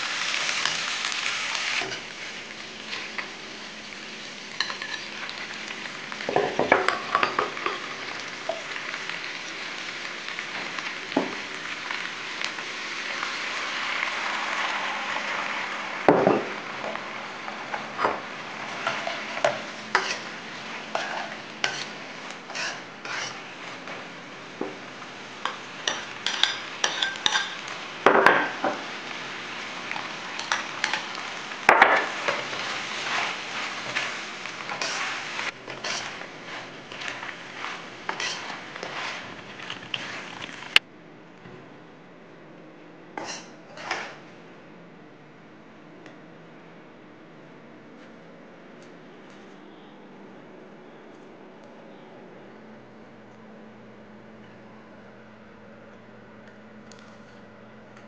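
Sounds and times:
food sizzling in a wok: 0.0s - 40.8s, 43.2s - 44.3s
metal ladle scraping and clanking: 22.5s - 23.4s, 34.7s - 40.5s, 43.2s - 44.2s.

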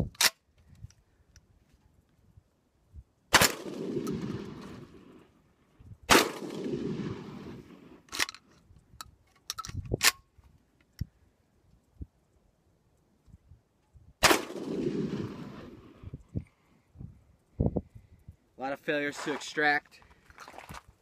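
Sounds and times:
shotgun shots echoing: 3.3s - 5.0s, 6.1s - 7.9s, 14.2s - 15.9s.

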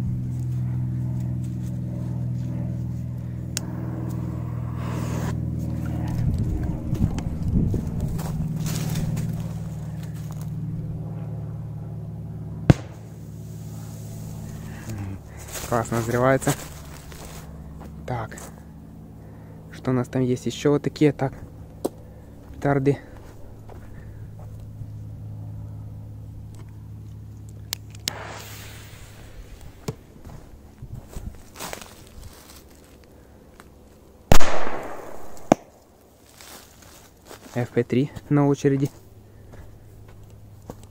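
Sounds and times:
steady low hum: 0.0s - 40.9s
firecracker bang: 12.7s - 13.2s, 28.1s - 30.1s, 34.3s - 35.7s.

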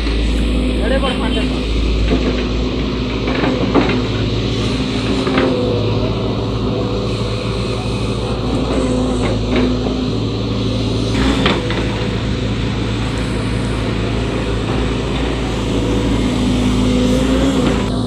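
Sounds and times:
excavator diesel engine running: 0.0s - 18.0s
hydraulic arm digging: 0.0s - 18.0s.

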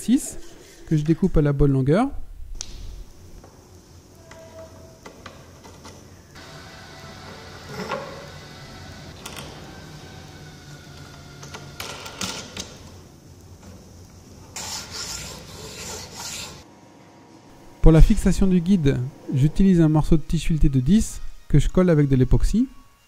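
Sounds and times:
faint background music: 17.6s - 23.0s.

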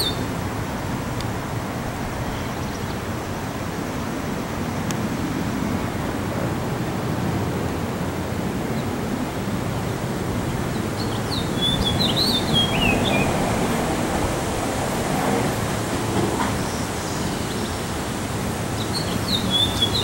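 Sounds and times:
finch singing: 10.6s - 13.5s, 18.8s - 20.0s.

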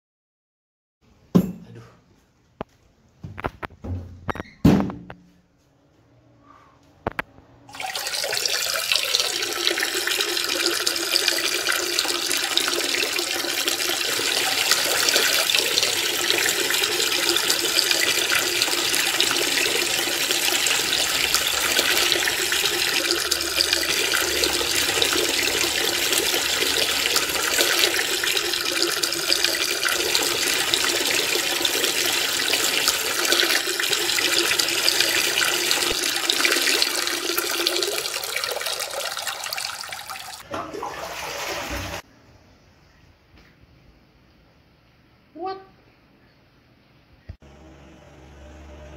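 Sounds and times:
water running: 7.7s - 42.1s.

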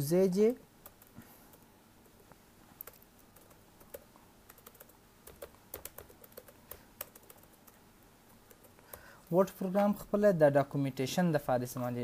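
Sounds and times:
keyboard keystrokes: 2.8s - 7.5s.

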